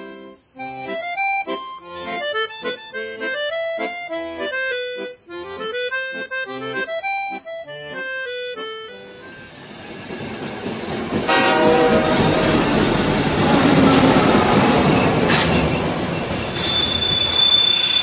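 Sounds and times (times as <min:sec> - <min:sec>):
accordion playing a tune: 0:00.0 - 0:09.6.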